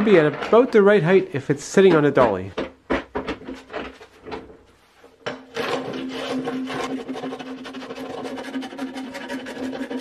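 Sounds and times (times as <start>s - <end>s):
hand sanding wood: 5.8s - 10.0s.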